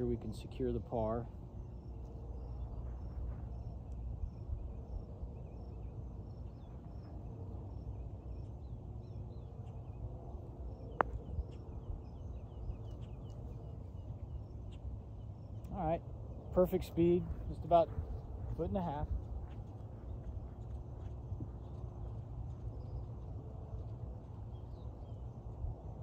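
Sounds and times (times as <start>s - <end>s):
birds chirping: 0.0s - 26.0s
low background rumble: 1.2s - 26.0s
putter striking golf ball: 10.9s - 11.2s.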